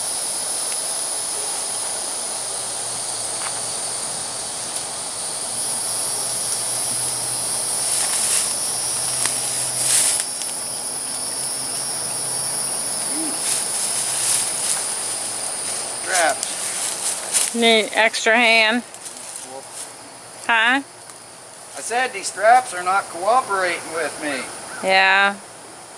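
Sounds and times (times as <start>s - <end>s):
buzzing insects: 0.0s - 25.9s.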